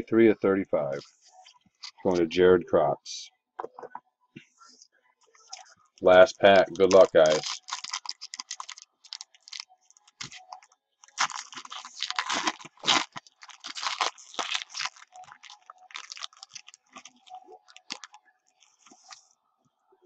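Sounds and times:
foil wrapper tearing and crinkling: 6.4 - 19.2.

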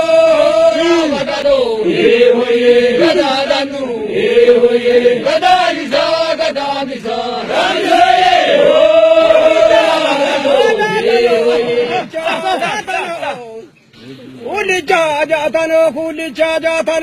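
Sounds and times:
men chanting long held notes: 0.0 - 13.3.

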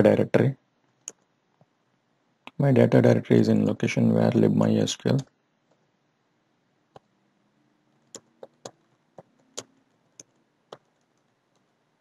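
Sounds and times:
keyboard keystrokes clicking: 8.1 - 11.7.

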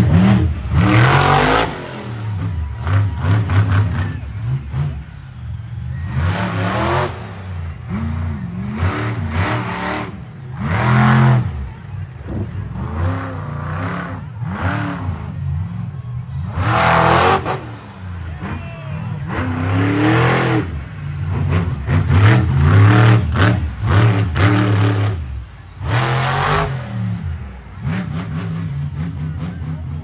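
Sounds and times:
truck engine revving hard: 0.0 - 30.0.

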